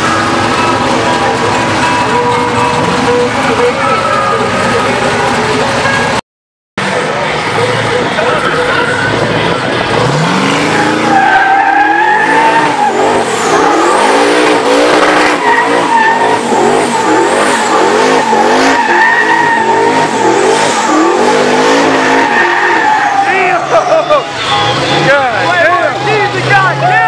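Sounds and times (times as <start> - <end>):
car engine revving: 0.0 - 6.2, 6.8 - 27.0
tyres squealing: 7.4 - 27.0.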